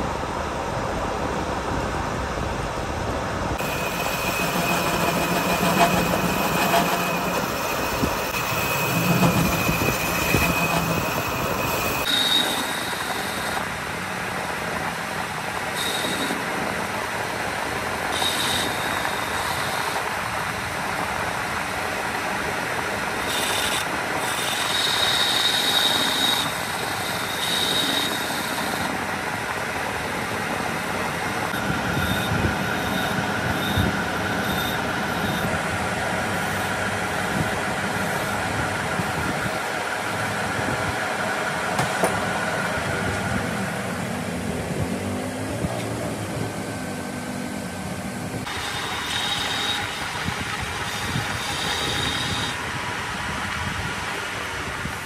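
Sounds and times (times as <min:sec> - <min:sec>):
high-pitched tool squeals: 0:03.6 - 0:13.8, 0:15.7 - 0:16.9, 0:18.0 - 0:20.2, 0:23.2 - 0:29.1, 0:31.4 - 0:35.7, 0:48.4 - 0:52.6
metal lathe machining: 0:03.6 - 0:44.5, 0:48.4 - 0:55.0.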